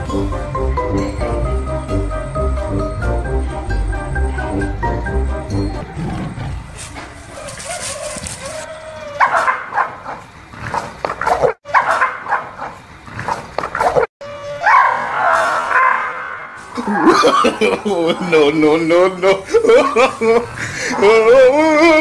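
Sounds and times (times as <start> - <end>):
small dog barking: 9.2 - 10.2, 11.2 - 12.8.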